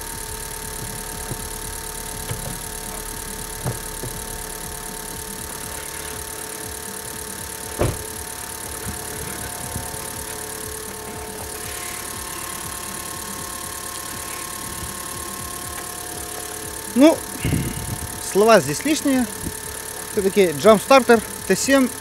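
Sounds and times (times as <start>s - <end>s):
car engine idling: 0.0s - 22.0s
sharp knock: 7.8s - 8.2s.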